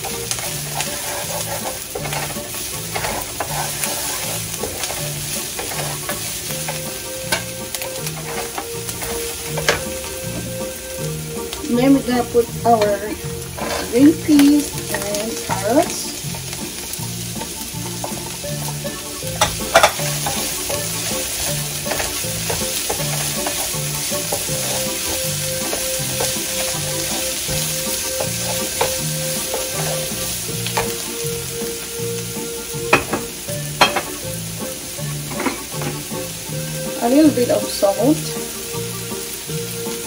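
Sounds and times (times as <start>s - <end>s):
wooden spatula stirring: 0.0s - 31.4s
vegetables sizzling in hot oil: 0.0s - 40.0s
spatula tapping against pan: 4.6s - 10.6s, 17.4s - 31.0s.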